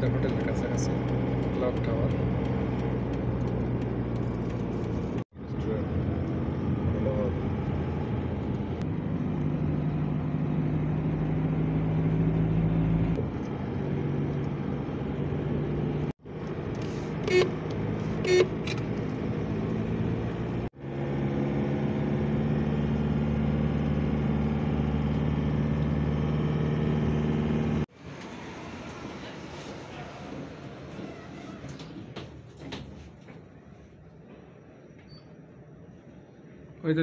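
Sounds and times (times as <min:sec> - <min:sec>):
vehicle engine and road hum: 0:00.0 - 0:33.6
car horn toots: 0:17.2 - 0:17.6, 0:18.2 - 0:18.6.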